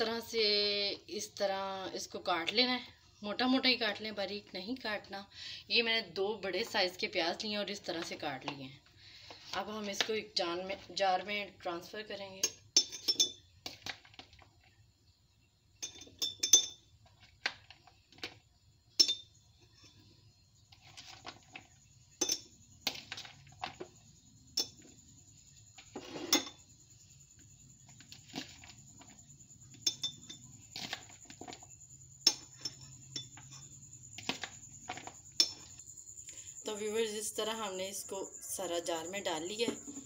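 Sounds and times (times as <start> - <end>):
glass jar clinking: 12.4 - 13.9, 15.8 - 17.0, 18.9 - 20.0, 22.1 - 23.9, 24.5 - 25.0, 25.8 - 26.7, 28.4 - 35.8.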